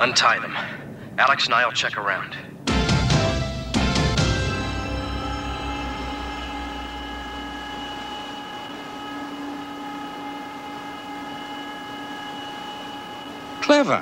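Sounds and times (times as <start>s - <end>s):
synthesized machine hum: 2.6s - 13.8s
low pulsing: 2.7s - 13.5s.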